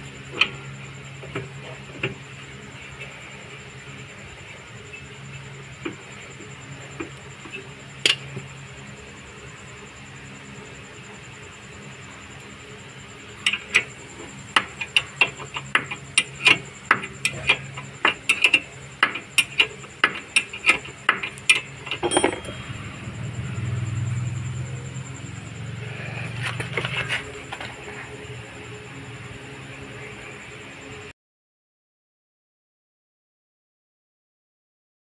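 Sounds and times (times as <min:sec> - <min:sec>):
low hum: 0:22.0 - 0:29.1.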